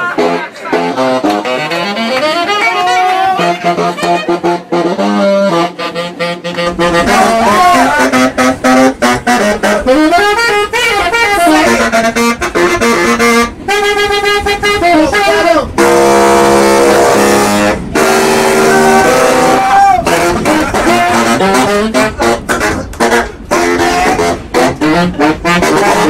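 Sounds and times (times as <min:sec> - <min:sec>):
saxophones playing jazz: 0:00.0 - 0:26.0
low rumble: 0:06.6 - 0:26.0.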